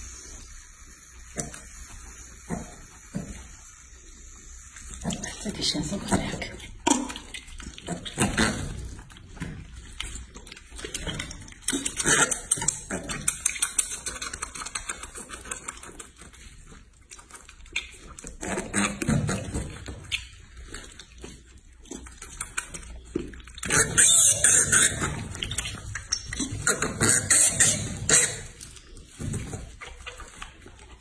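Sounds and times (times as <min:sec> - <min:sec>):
piglet suckling on bottle: 0:00.0 - 0:31.0.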